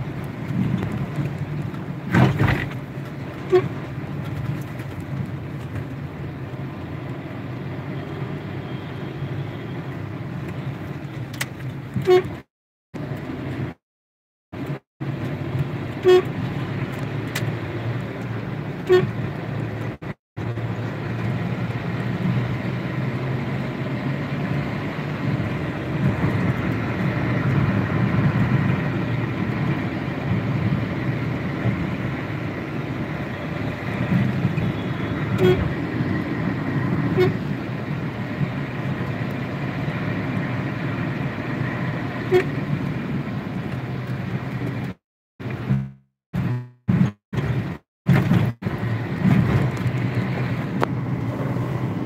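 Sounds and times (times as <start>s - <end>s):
engine and road noise rumble: 0.0s - 13.8s, 14.5s - 52.0s
car horn toots: 3.4s - 3.8s, 12.0s - 12.4s, 16.0s - 16.4s, 18.8s - 19.2s, 34.6s - 35.8s, 37.1s - 37.4s, 42.3s - 42.6s, 45.7s - 47.2s.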